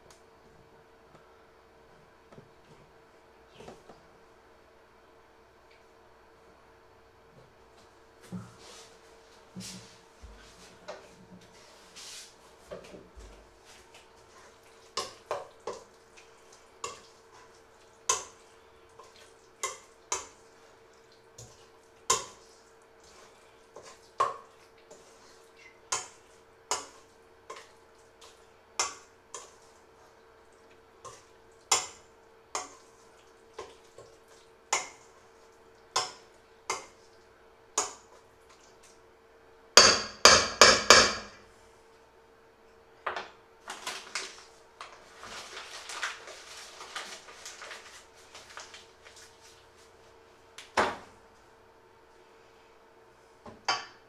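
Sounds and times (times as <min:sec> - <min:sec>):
faint steady hum: 0:00.0 - 0:54.0
batter sloshing: 0:43.6 - 0:50.0.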